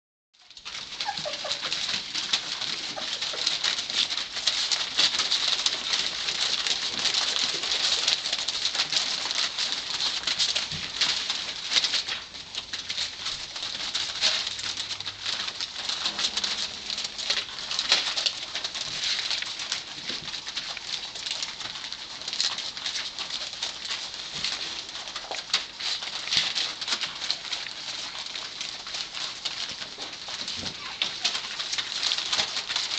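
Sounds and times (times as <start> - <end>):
paws rustling newspaper: 0.4 - 32.9
faint puppy squeaks: 1.0 - 1.7.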